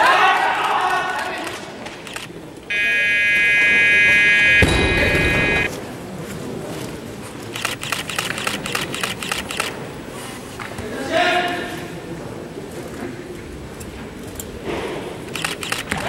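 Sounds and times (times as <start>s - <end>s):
electronic buzzer: 2.7s - 5.7s
sharp clicks: 7.6s - 9.8s, 15.4s - 16.0s.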